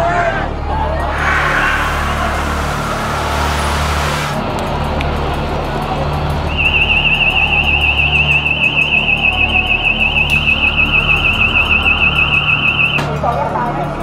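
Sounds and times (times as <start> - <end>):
high electronic alarm warbling: 6.6 - 13.1.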